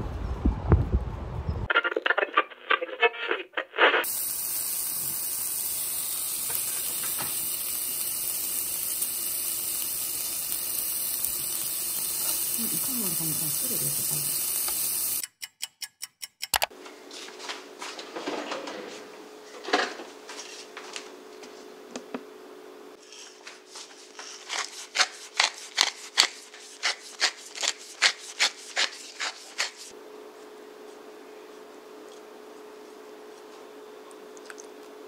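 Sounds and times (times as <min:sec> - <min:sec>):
meat sizzling in a frying pan: 0:04.0 - 0:15.2
pepper mill grinding: 0:04.0 - 0:15.2, 0:23.0 - 0:29.9.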